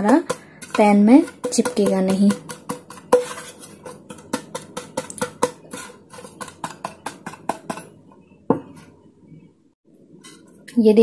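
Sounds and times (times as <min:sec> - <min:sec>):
hand tapping metal pan: 0:00.0 - 0:08.7.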